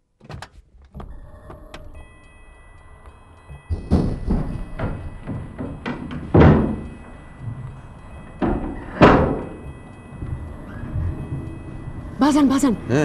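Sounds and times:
heavy thuds with ringing tail: 0:03.5 - 0:12.2.

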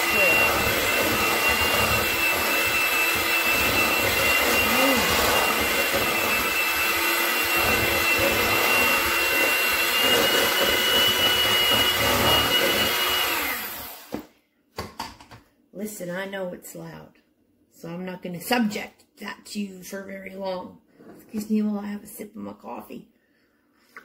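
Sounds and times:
electric hand mixer running: 0:00.0 - 0:14.3.

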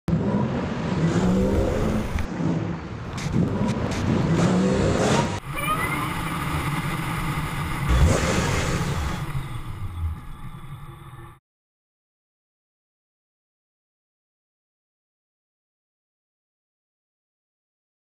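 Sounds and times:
engine and road noise: 0:00.0 - 0:11.4
car engine revving: 0:00.1 - 0:11.4
short rising whine: 0:05.4 - 0:11.4.

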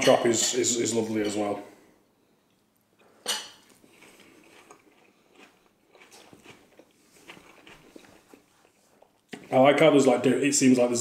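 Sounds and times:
faint chewing: 0:02.2 - 0:09.7
crunch biting into meat: 0:03.7 - 0:08.7.

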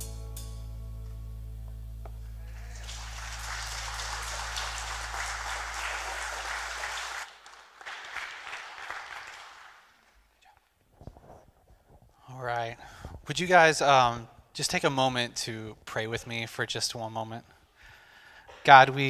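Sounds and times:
congregation applauding: 0:02.4 - 0:10.2.

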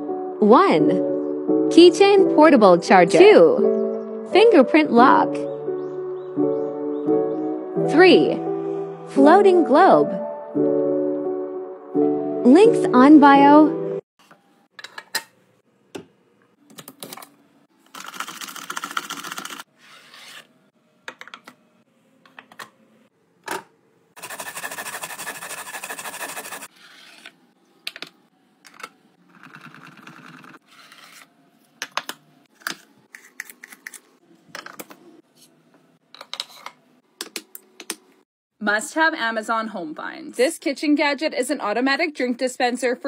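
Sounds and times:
carrots grated on metal grater: 0:24.2 - 0:26.7.

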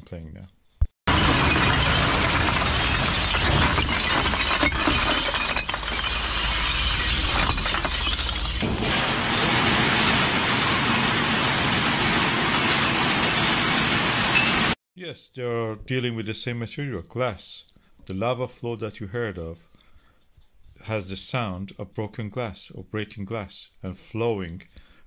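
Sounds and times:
glass bottles crashing and shattering: 0:01.1 - 0:14.8.

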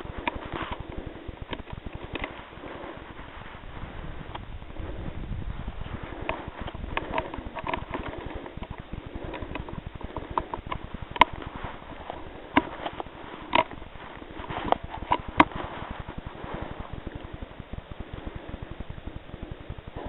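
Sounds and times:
sharp clicks and knocks: 0:00.0 - 0:03.0, 0:06.2 - 0:20.0
handling rustle: 0:05.8 - 0:20.0.

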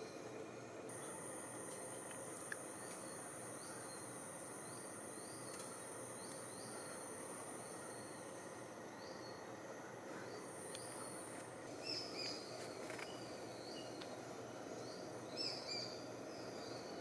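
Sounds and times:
bird chirping: 0:10.2 - 0:14.0, 0:14.8 - 0:17.0.

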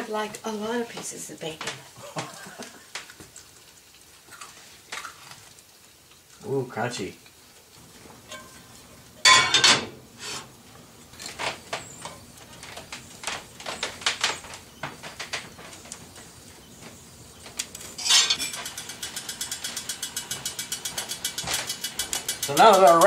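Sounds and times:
lid rattling from steam: 0:08.2 - 0:10.5, 0:17.8 - 0:23.0
metal spatula scraping skillet: 0:08.2 - 0:10.6, 0:18.0 - 0:21.8
pot lid clanking: 0:08.3 - 0:09.9.

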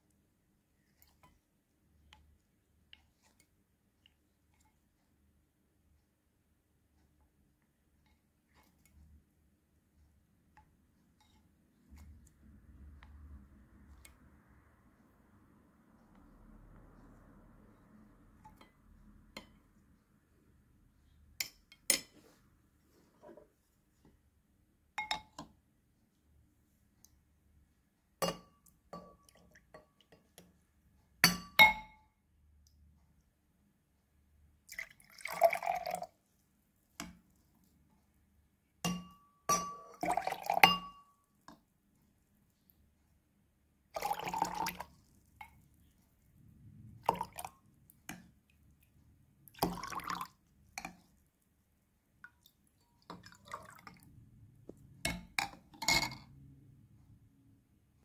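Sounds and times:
liquid pouring and trickling: 0:34.7 - 0:36.2, 0:39.9 - 0:40.7, 0:44.0 - 0:45.6, 0:46.9 - 0:48.0, 0:49.4 - 0:51.0, 0:52.2 - 0:54.2
ladle clinking against glass: 0:38.9 - 0:41.1.

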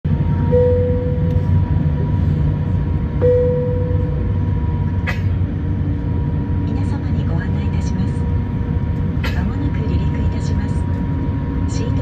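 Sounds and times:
aircraft cabin drone: 0:00.0 - 0:12.0
single-note chime tone: 0:00.5 - 0:01.4, 0:03.2 - 0:04.2.

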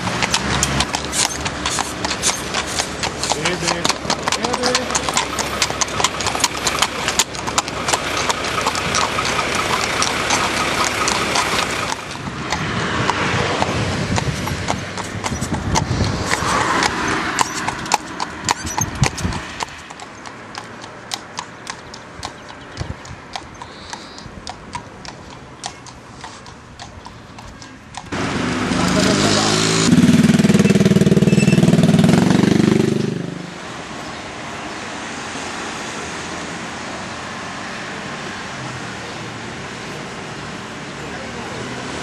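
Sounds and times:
hooves clip-clopping on asphalt: 0:00.0 - 0:29.2
road traffic noise: 0:00.0 - 0:42.0.

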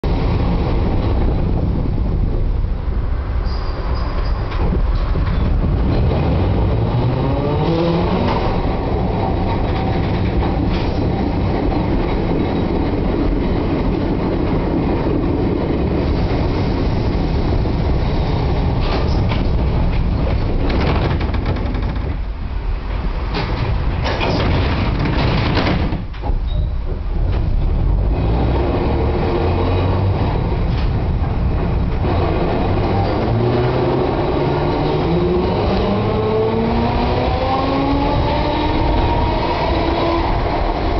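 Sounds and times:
tram wheels rumbling on rails: 0:00.0 - 0:40.9
wheels clacking over rail joints: 0:03.4 - 0:40.9.

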